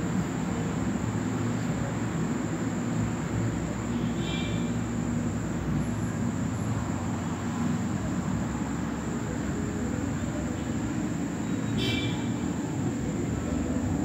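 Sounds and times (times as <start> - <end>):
low rumbling background noise: 0.0 - 14.0.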